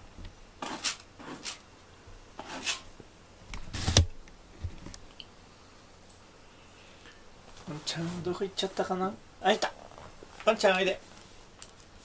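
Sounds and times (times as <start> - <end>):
cat scratching in litter: 0.6 - 1.6, 2.4 - 2.9.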